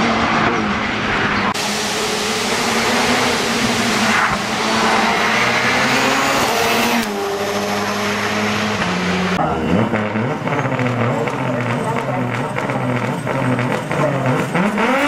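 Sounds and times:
race car engine accelerating: 0.0s - 15.0s.

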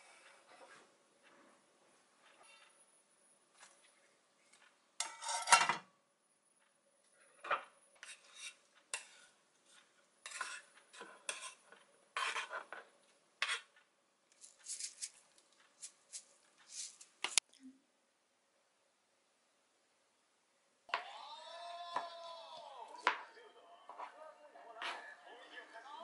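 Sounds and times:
wooden utensils scraping and tapping: 4.5s - 5.8s, 7.3s - 17.4s, 23.9s - 25.2s.

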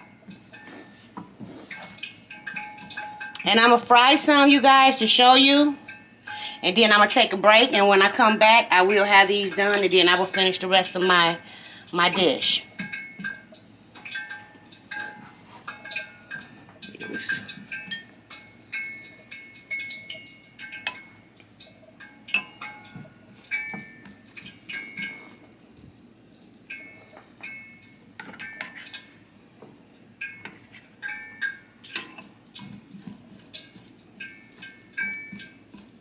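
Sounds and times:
ceramic bowl clinking: 12.2s - 36.0s.

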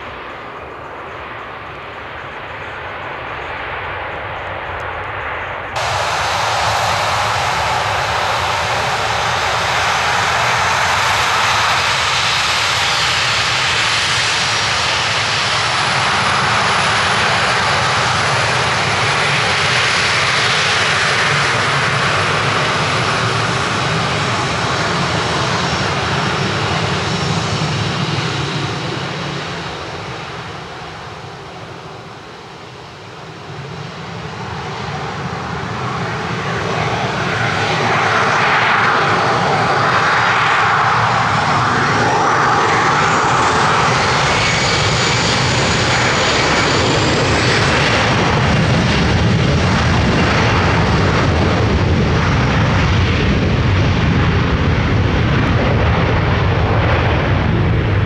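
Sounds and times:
airliner engines roaring: 0.0s - 58.0s
high whine rising in pitch: 5.7s - 12.0s.

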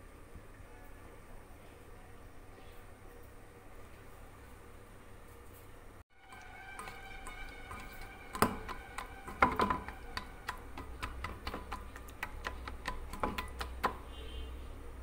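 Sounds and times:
hand mixing flour in metal bowl: 6.2s - 14.2s.

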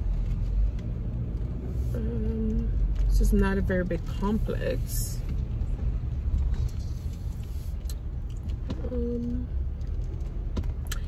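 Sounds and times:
car engine low rumble: 0.0s - 11.0s.

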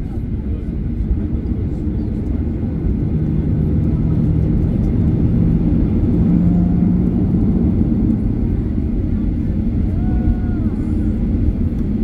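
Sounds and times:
jet engines rumbling: 0.0s - 12.0s
steady hum rising in pitch: 3.1s - 11.2s.

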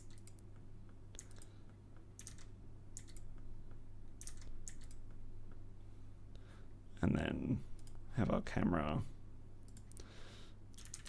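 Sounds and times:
computer keyboard keys clicking: 0.0s - 0.4s, 1.1s - 1.5s, 2.2s - 3.3s, 4.2s - 5.0s, 10.8s - 11.0s
faint low hum: 0.0s - 11.0s.

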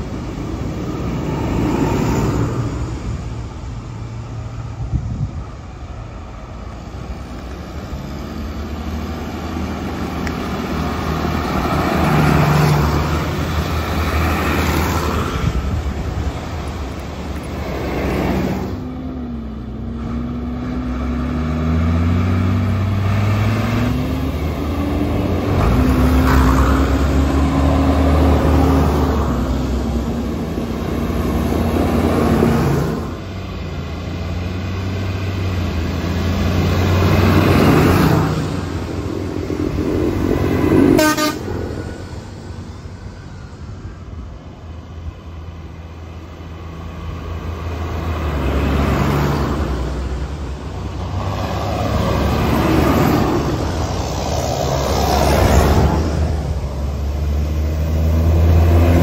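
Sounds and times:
diesel tractors driving past: 0.0s - 59.0s
vehicle horn toots: 40.9s - 41.5s.

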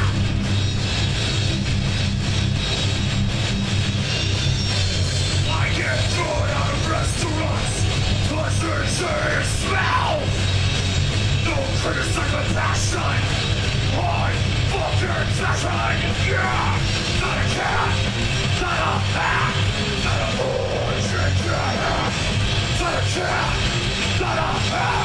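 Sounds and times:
heavy metal band playing: 0.0s - 25.0s
singer yelling vocals: 5.4s - 10.4s, 11.4s - 25.0s.

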